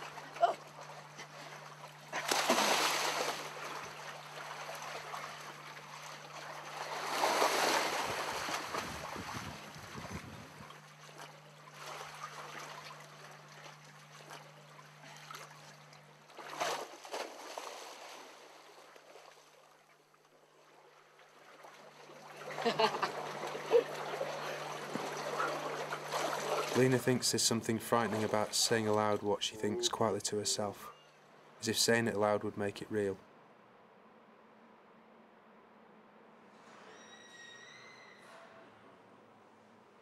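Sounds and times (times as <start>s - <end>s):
sea water splashing: 0.0s - 19.8s, 20.6s - 30.8s.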